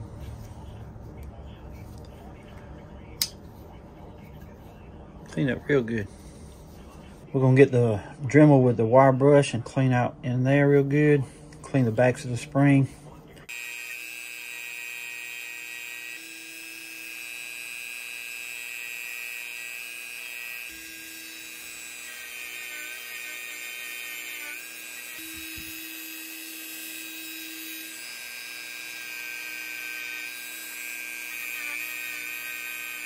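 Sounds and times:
rotary tool wire brush whine: 13.5s - 33.0s.

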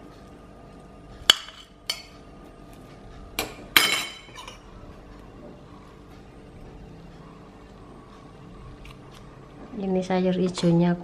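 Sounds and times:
metal spoon clinking on plates: 3.4s - 4.6s.

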